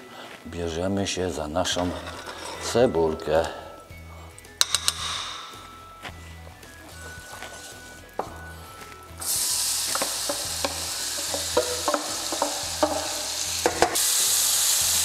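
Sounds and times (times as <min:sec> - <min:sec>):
wooden spatula scraping metal bowl: 0:01.7 - 0:03.0
onion sizzling in a frying pan: 0:06.8 - 0:15.0.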